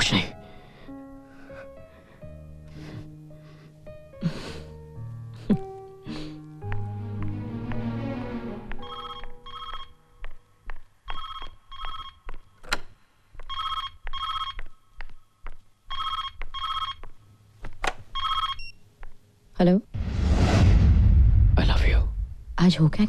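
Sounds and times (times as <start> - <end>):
footsteps on hard floor: 6.6 - 9.4
telephone ringing: 8.8 - 10.1, 11.1 - 12.3, 13.5 - 14.7, 15.9 - 17.1, 18.1 - 18.8.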